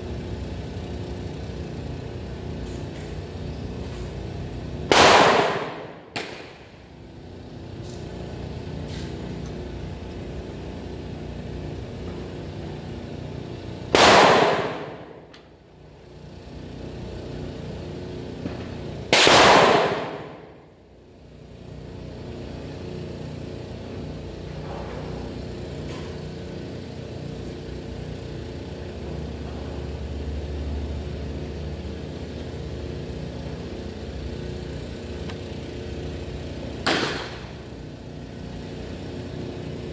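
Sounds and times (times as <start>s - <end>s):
steady background hum: 0.0s - 39.9s
loud gunshots: 4.9s - 6.5s, 13.9s - 15.0s, 19.1s - 20.4s.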